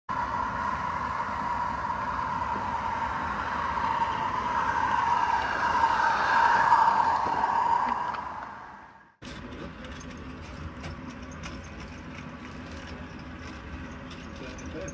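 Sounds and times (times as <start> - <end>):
model steam train running past: 0.1 - 14.9.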